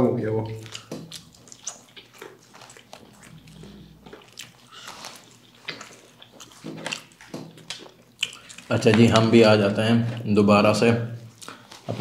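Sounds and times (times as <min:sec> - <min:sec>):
person chewing crispy food: 0:00.5 - 0:09.0, 0:11.3 - 0:11.9
wet mouth clicks: 0:00.6 - 0:08.7.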